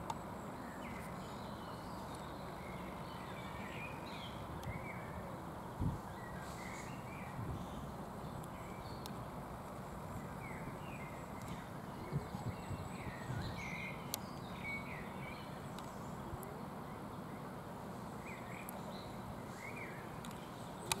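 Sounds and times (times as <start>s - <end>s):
low background noise: 0.0s - 21.0s
faint clicks: 8.4s - 9.2s, 15.7s - 16.5s, 20.2s - 21.0s.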